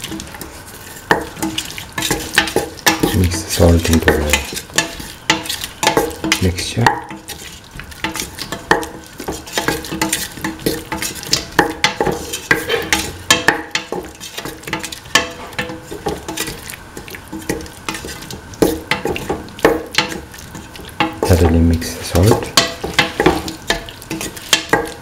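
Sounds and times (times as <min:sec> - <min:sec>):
spatula scraping metal pan: 0:00.0 - 0:16.6, 0:17.3 - 0:21.4, 0:22.5 - 0:25.0
light frying sizzle: 0:00.0 - 0:25.0.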